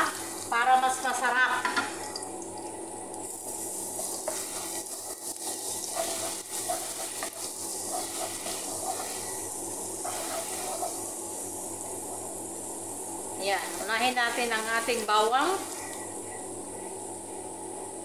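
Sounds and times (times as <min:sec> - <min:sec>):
garlic sizzling in hot oil: 0:00.0 - 0:16.3
wooden spoon scraping a pan: 0:03.3 - 0:11.2.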